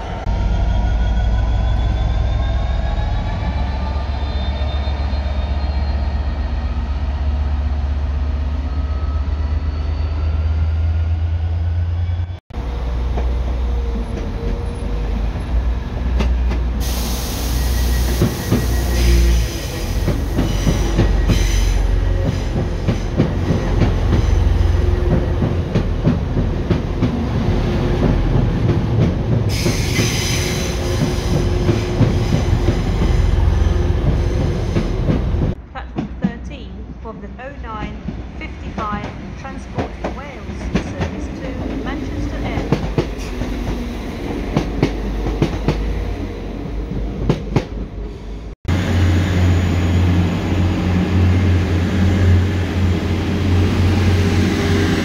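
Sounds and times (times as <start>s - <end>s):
diesel locomotive engine drone: 0.0s - 55.0s
train rumbling along platform: 0.0s - 55.0s
train wheels squealing: 0.3s - 12.4s, 16.8s - 25.2s, 29.5s - 34.9s.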